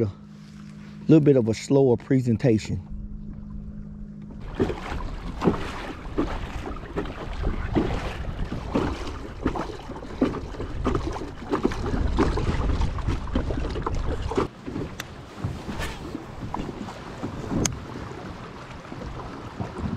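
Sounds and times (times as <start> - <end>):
wind buffeting microphone: 2.9 - 19.9
waves slapping plastic hull: 4.4 - 19.9.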